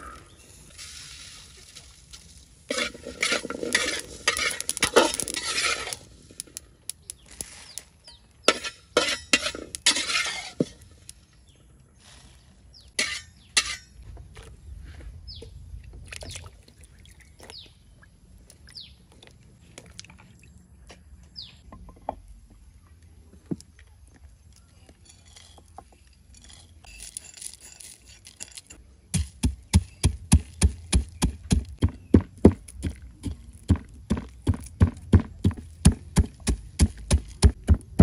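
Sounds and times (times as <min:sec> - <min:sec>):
pestle pounding in a mortar: 0:29.2 - 0:38.0.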